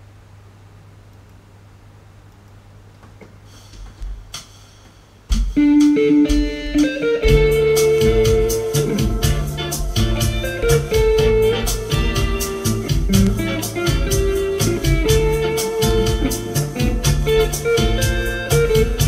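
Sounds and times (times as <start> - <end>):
drums and bass backing track: 3.2 - 19.0
electric guitar lead melody: 5.3 - 19.0.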